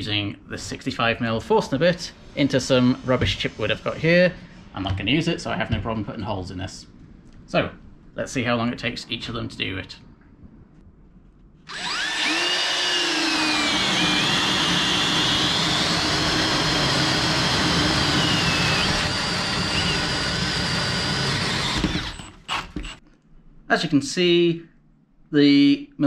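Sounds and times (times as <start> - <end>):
cordless drills whining: 11.7 - 23.0.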